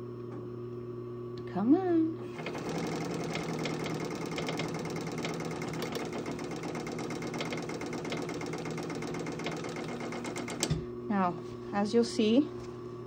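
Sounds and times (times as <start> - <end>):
sewing machine motor hum: 2.2 - 10.9.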